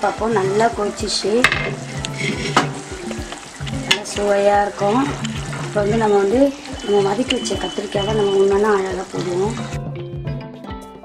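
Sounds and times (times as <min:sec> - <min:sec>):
thick gravy bubbling: 0:00.2 - 0:10.0
ladle knocking pot: 0:01.4 - 0:04.3
wooden ladle stirring: 0:01.6 - 0:09.7.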